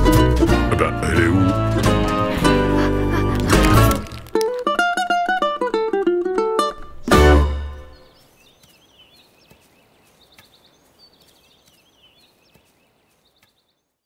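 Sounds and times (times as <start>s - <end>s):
plucked-string music: 0.0s - 8.0s
birds chirping and trilling: 6.9s - 14.0s.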